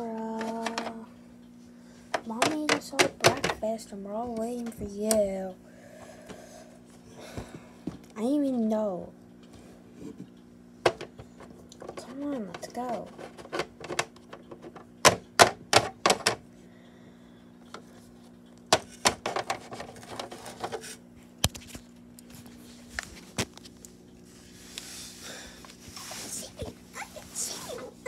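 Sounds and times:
plastic toys tapping: 0.4s - 1.0s, 2.1s - 3.7s, 11.8s - 16.4s.

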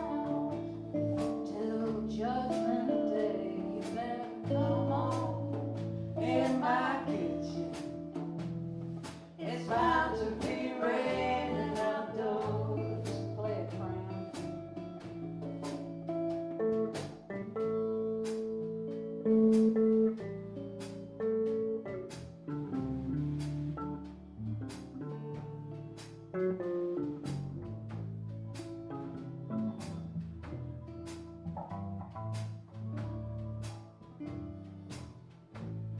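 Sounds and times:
woman singing: 0.0s - 8.0s, 9.4s - 14.2s
blues band playing: 0.0s - 35.9s
guitar lead line: 0.0s - 35.9s.

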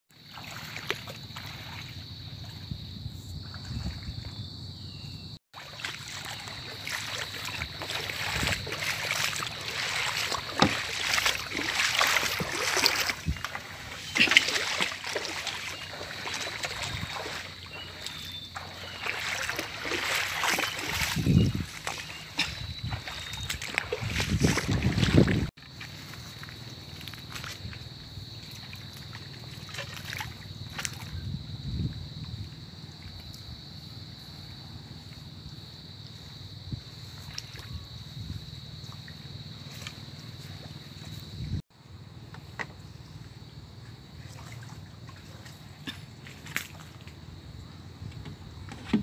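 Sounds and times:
footsteps splashing through water: 0.1s - 4.4s, 5.5s - 31.3s, 36.1s - 41.6s, 43.8s - 47.3s.

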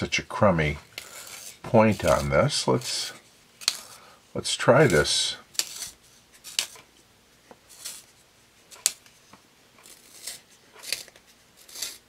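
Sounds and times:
pencil sharpener scraping: 1.0s - 4.0s, 4.8s - 6.8s, 7.7s - 8.1s, 9.8s - 12.0s.

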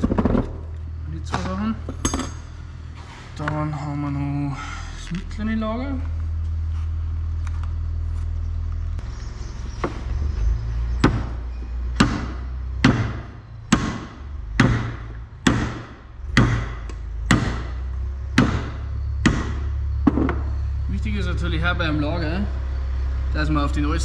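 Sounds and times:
low steady hum: 0.0s - 24.0s
hammer striking metal: 1.9s - 2.5s, 12.0s - 17.8s, 18.4s - 20.4s.

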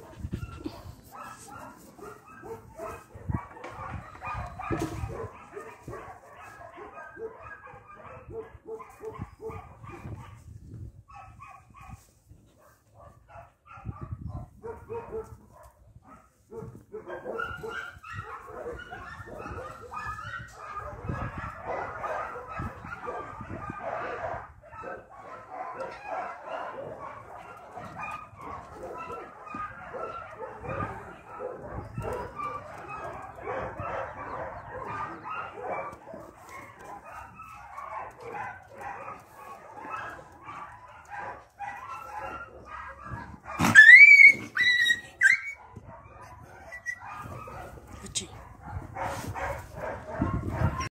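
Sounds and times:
dog whining and yipping: 43.6s - 45.6s, 46.6s - 47.2s.

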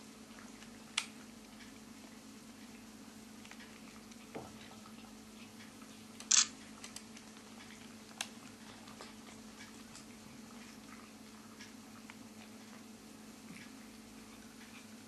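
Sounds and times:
cats chewing and licking: 0.0s - 15.0s
steady low hum: 0.0s - 15.0s.

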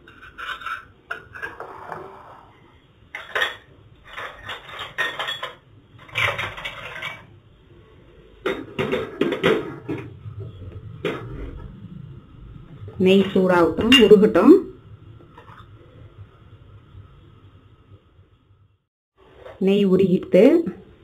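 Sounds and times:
spoon scraping a pan: 0.0s - 2.6s.

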